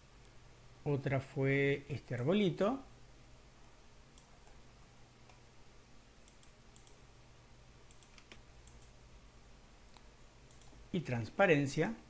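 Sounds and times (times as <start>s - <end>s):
low hiss: 0.0s - 12.0s
faint computer mouse clicks: 4.2s - 4.6s, 6.2s - 7.0s, 7.8s - 9.0s, 9.9s - 10.8s.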